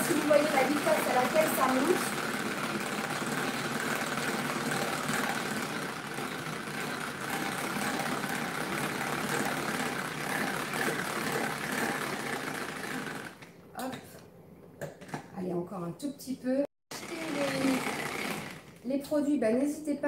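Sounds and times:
hand-cranked whisk whirring: 0.0 - 13.5, 16.9 - 18.8.

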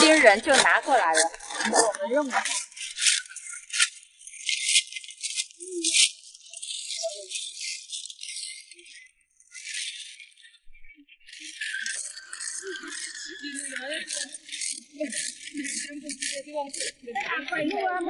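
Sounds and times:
spade scraping through mussel shells: 0.0 - 10.4.

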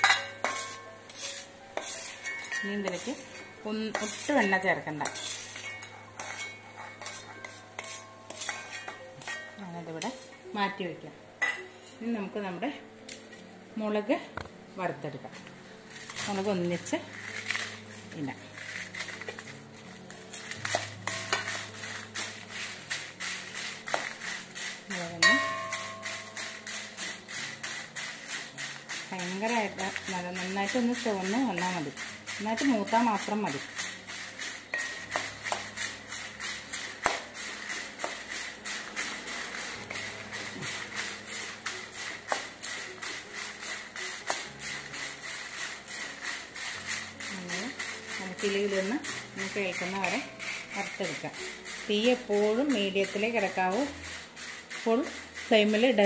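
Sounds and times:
metallic clang off pan: 0.0 - 0.8, 25.2 - 26.3
spatula scraping chillies in a pan: 0.0 - 10.7, 15.2 - 56.0.

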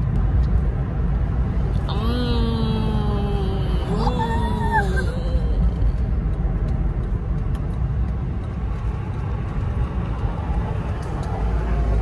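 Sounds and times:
car cabin road and engine rumble: 0.0 - 12.0.

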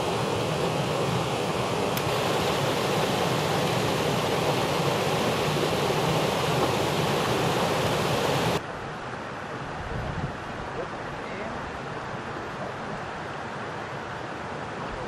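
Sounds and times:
waterfall splashing over rocks: 0.0 - 8.6
background hiss: 0.0 - 8.8.

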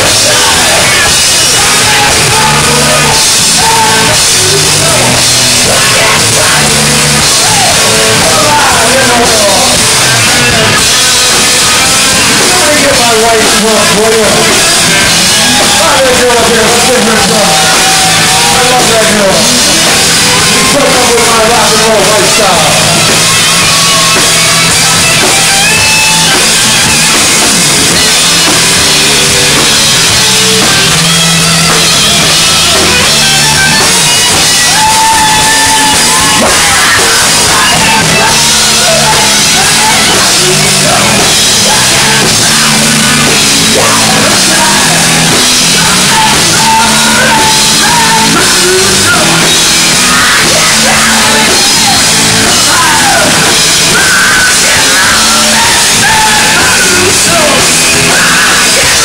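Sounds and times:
bass guitar: 0.0 - 59.0
distorted electric guitar: 0.0 - 59.0
drum kit with cymbals: 0.0 - 59.0.

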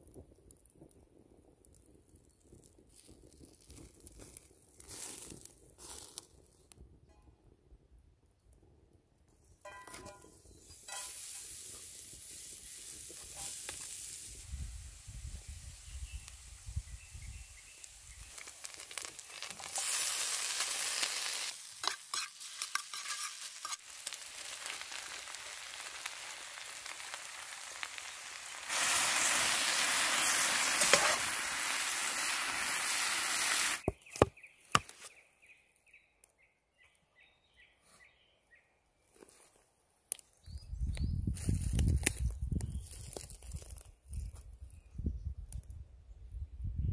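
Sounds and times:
food sizzling in a pan: 10.6 - 33.9
spatula stirring: 21.8 - 23.9.

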